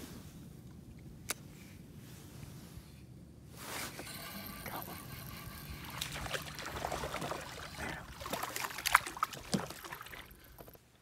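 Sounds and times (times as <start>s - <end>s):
fish splashing in water: 5.7s - 10.8s.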